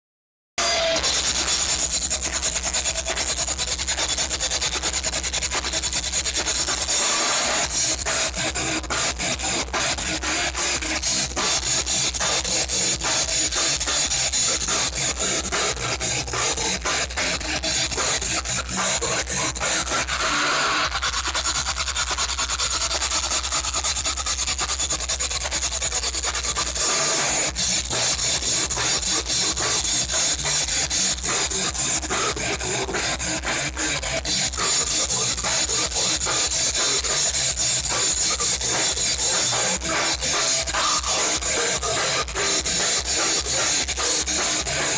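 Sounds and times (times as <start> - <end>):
distorted electric guitars: 0.6 - 44.9
fast drumming: 0.6 - 44.9.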